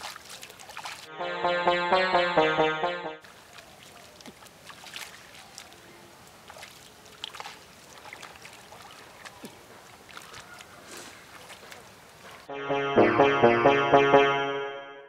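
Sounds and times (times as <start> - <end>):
water and mud sloshing: 0.0 - 1.1, 3.2 - 12.5
small splashes: 0.0 - 1.2, 3.2 - 12.5.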